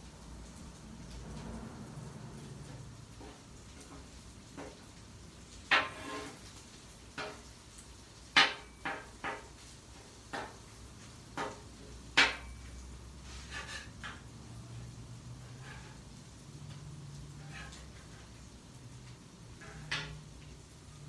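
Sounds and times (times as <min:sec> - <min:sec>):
metal spatula scraping griddle: 0:05.7 - 0:06.6, 0:13.2 - 0:18.5, 0:19.5 - 0:20.4.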